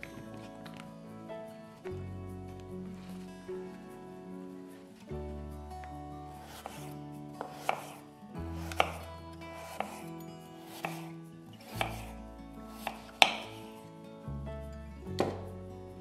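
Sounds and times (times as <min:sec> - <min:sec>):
soft background music: 0:00.0 - 0:16.0
knife slicing potato: 0:06.3 - 0:11.1, 0:11.7 - 0:13.7
knife tapping cutting board: 0:06.5 - 0:08.0, 0:08.6 - 0:10.0, 0:10.7 - 0:11.1, 0:11.7 - 0:12.1, 0:12.7 - 0:13.6.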